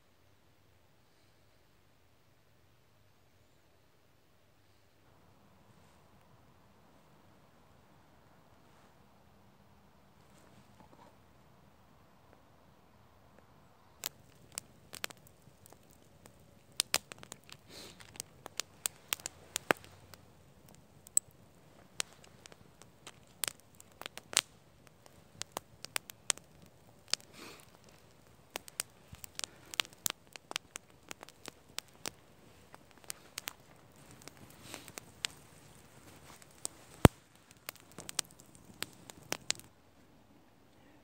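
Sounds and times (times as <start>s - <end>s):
campfire crackling: 13.3s - 39.8s
sharp pops from fire: 13.9s - 39.7s
soft hisses: 13.9s - 39.7s.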